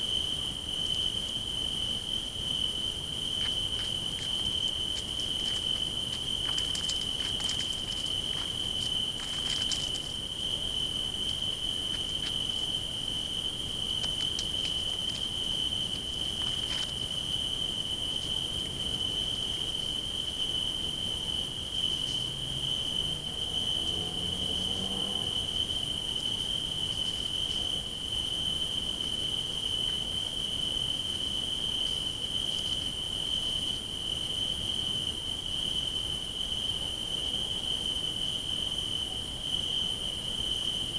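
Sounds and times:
crickets trilling: 0.0s - 40.9s
faint ticks: 4.9s - 10.1s.

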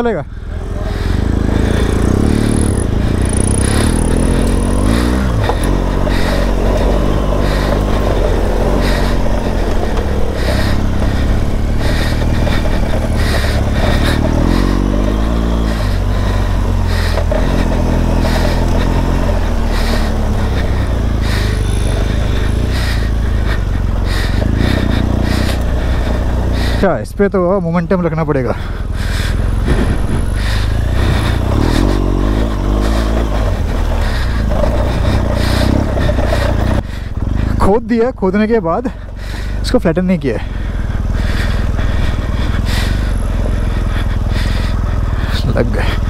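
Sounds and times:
motorcycle engine revving: 0.0s - 46.0s
motorcycle knocks and rattles: 1.3s - 26.8s, 27.4s - 37.7s.

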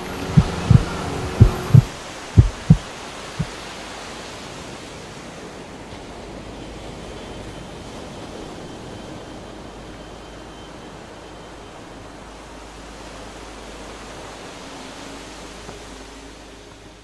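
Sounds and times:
speedboat wind and water rushing: 0.0s - 17.0s
heavy low thumps: 0.3s - 3.5s.

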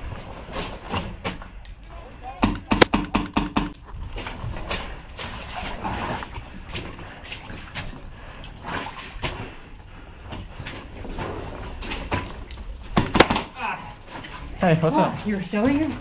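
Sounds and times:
footsteps through mud and water: 3.8s - 16.0s.

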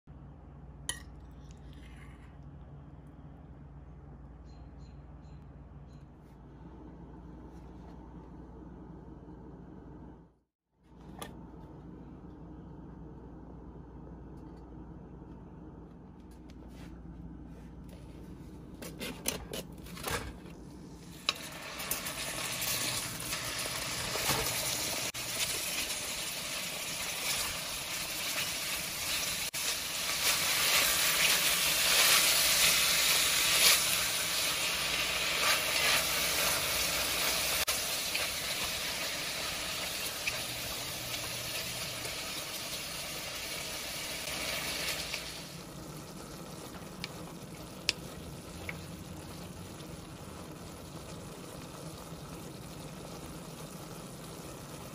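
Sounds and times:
ground beef sizzling in oil: 21.0s - 47.0s.

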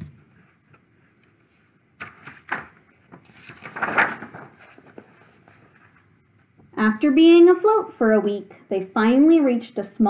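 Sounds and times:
paper page rustling: 2.0s - 6.1s.

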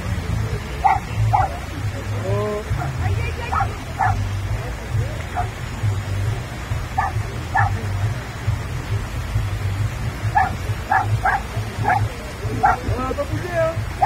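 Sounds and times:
dog yelping: 0.8s - 1.6s, 2.8s - 4.2s, 7.0s - 7.8s, 10.3s - 12.9s.

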